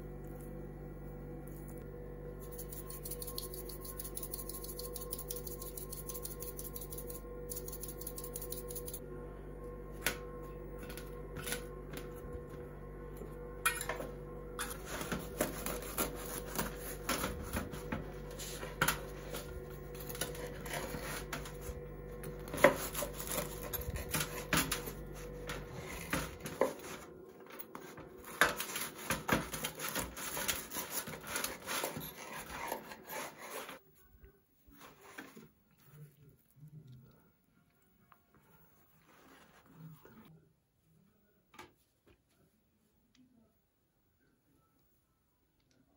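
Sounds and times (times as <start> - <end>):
steady low hum: 0.0 - 41.4
knife sawing through bread: 15.1 - 17.0, 22.5 - 24.5, 28.6 - 33.8.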